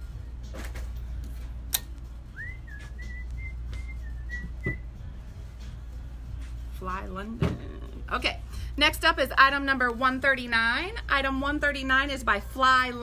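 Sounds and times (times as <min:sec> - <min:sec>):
steady low hum: 0:00.0 - 0:13.0
person whistling high notes: 0:02.4 - 0:04.9.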